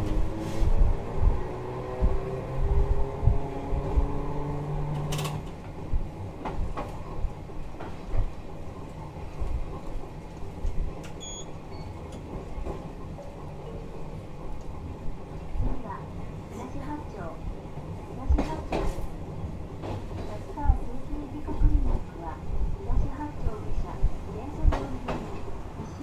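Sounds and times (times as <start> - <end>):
low rumble with knocks and rattles: 0.0 - 11.2, 18.1 - 25.6
tram motor and gear tones: 0.0 - 26.0.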